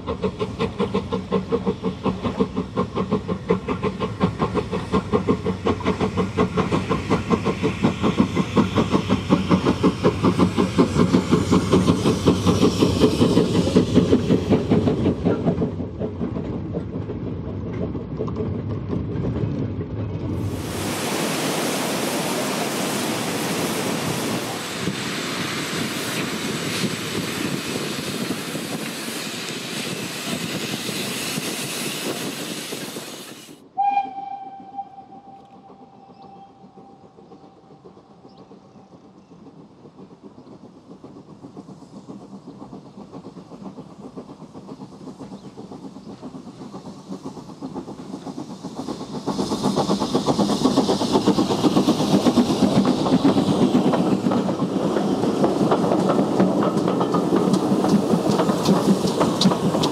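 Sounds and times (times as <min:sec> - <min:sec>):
steady rushing hiss: 0:00.0 - 0:15.9, 0:20.4 - 0:33.8, 0:34.6 - 0:59.9
steam locomotive exhaust beats: 0:00.0 - 0:59.9.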